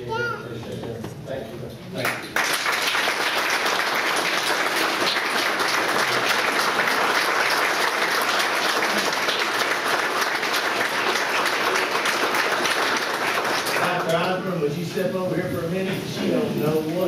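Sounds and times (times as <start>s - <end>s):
crowd applauding: 2.0s - 14.4s.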